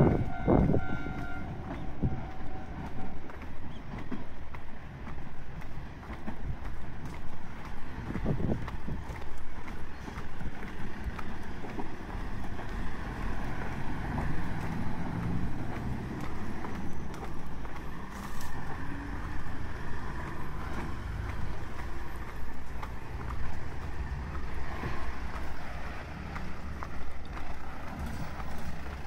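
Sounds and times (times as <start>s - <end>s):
wind rumble on microphone: 0.0s - 4.2s, 4.8s - 17.1s
faint traffic hum: 0.0s - 29.0s
footsteps on paved path: 0.0s - 29.0s.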